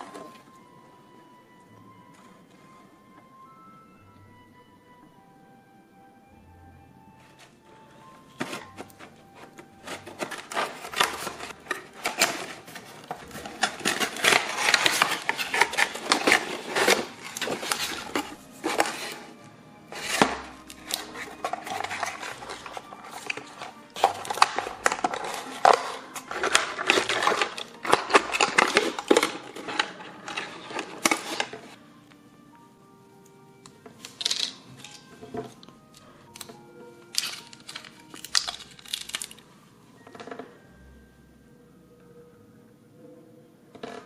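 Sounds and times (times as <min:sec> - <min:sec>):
faint background music: 0:00.0 - 0:44.0
cardboard rustling and scraping: 0:08.3 - 0:31.8
scissors cutting cardboard: 0:08.3 - 0:31.8.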